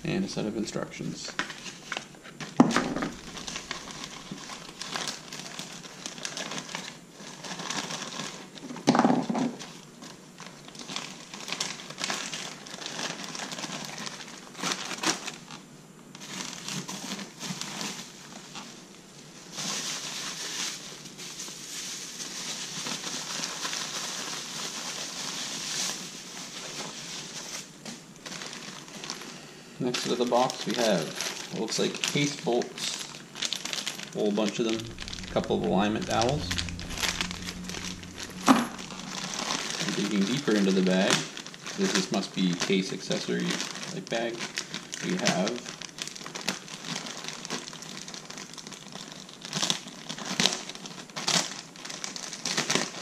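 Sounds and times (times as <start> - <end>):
plastic bags crinkling: 1.3 - 8.8, 9.6 - 15.4, 28.2 - 35.3, 39.1 - 53.0.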